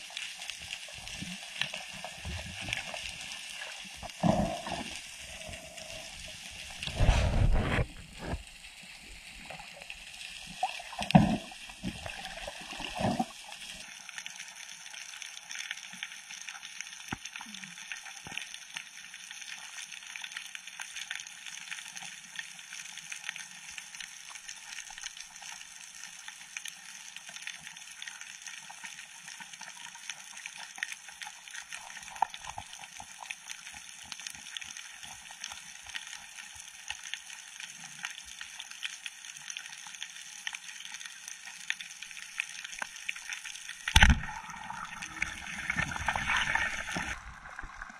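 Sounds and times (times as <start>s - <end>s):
water splashing and gurgling: 0.0s - 13.9s, 42.0s - 47.9s
underwater hiss with crackling: 0.0s - 47.9s.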